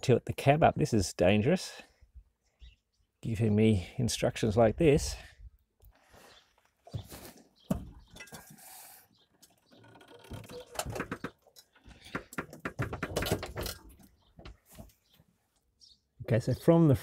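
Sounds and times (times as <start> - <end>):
metal clanks and scrapes: 8.1 - 8.7.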